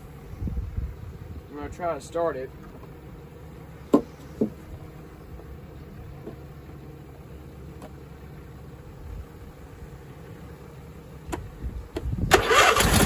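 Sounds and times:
low steady hum: 0:00.0 - 0:13.0
engine cranking and starting: 0:12.2 - 0:13.0.

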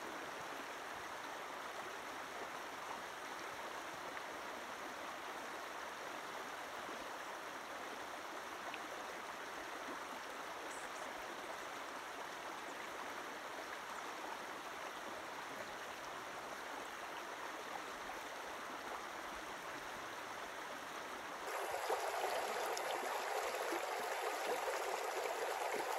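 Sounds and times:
water rushing over rocks: 0:21.4 - 0:25.9.

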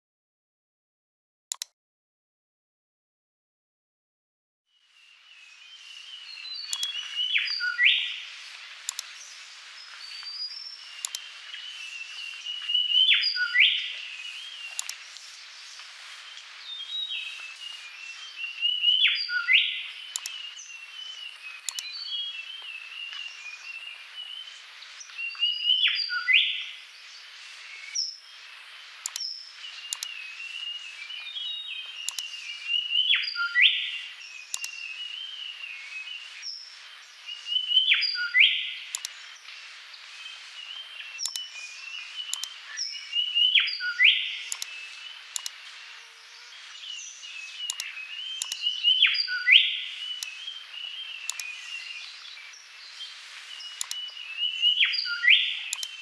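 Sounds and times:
birdsong with rising sweep: 0:29.0 - 0:56.0.

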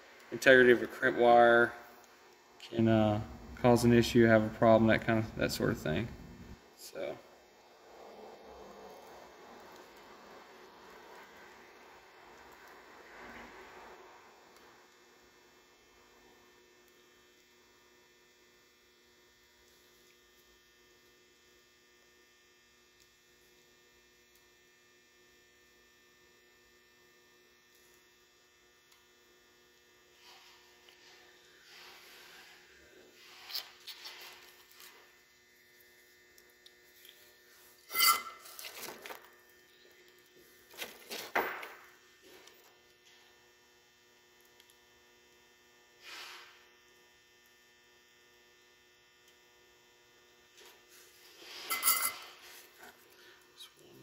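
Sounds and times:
faint electrical hum: 0:00.0 - 0:54.0.

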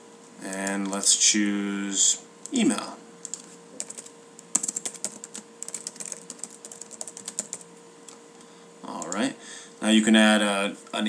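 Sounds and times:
faint steady hum: 0:00.0 - 0:11.0
typing on computer keyboard: 0:03.2 - 0:07.6, 0:09.0 - 0:09.2.

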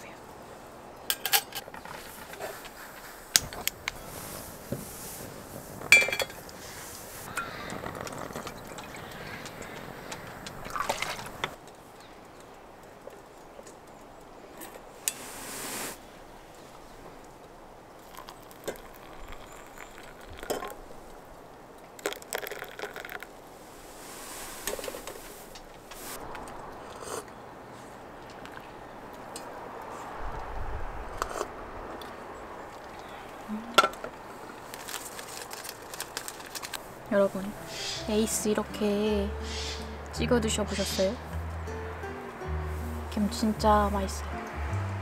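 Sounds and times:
soft hiss: 0:01.8 - 0:22.0, 0:23.2 - 0:45.0
cookware and utensils clinking: 0:05.9 - 0:06.4
cups clicking: 0:18.0 - 0:20.8, 0:22.0 - 0:23.3
cracker packet crinkling: 0:22.0 - 0:23.4, 0:34.4 - 0:37.0.

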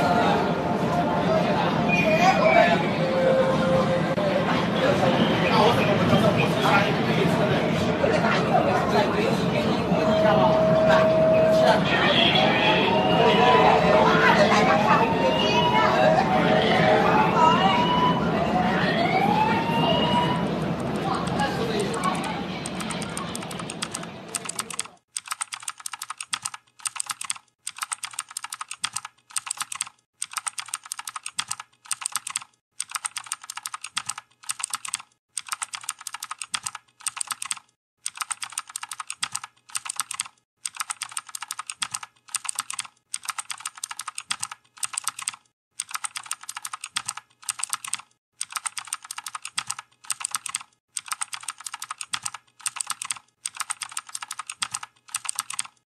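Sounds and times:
keyboard typing clicks: 0:20.7 - 0:55.8.

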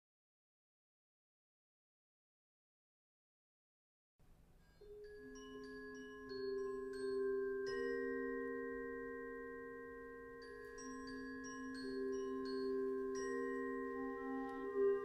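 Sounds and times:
mallet percussion bell-like melody: 0:04.6 - 0:15.0.

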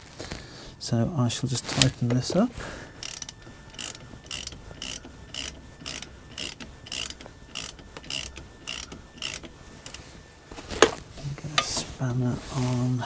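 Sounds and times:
socket ratchet clicking: 0:03.0 - 0:10.0.

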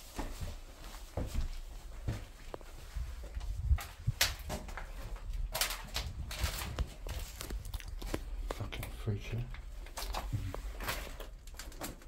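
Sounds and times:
footsteps on hard floor: 0:00.0 - 0:05.2.

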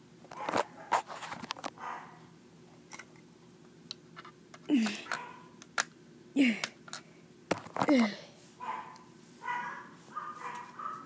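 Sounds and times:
breathy noises: 0:04.7 - 0:05.4, 0:07.8 - 0:08.4.

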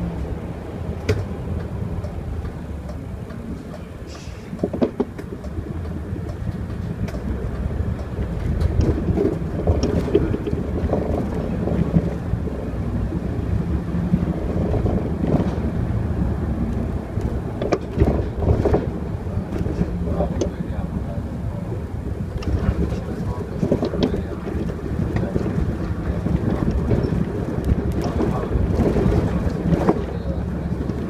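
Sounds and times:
bus engine and road rumble: 0:00.0 - 0:31.0
sharp clicks and rattles: 0:04.5 - 0:12.5, 0:16.6 - 0:31.0.

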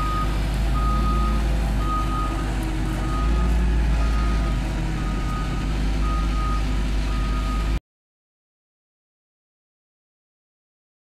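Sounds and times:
deep engine rumble: 0:00.0 - 0:07.8
back-up alarm beeping: 0:03.0 - 0:07.8.

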